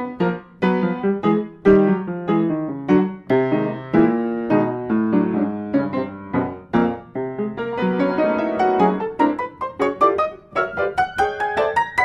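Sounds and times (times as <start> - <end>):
solo piano music: 0.0 - 12.0.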